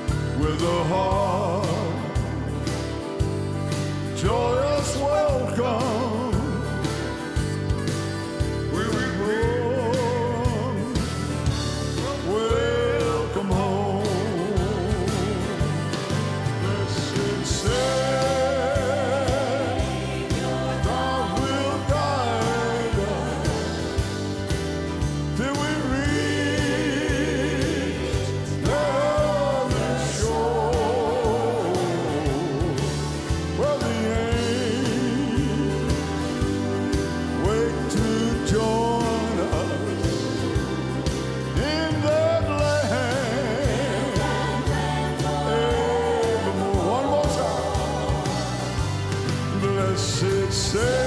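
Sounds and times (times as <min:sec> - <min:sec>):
gospel band with piano: 0:00.0 - 0:51.0
singers in harmony: 0:08.6 - 0:51.0.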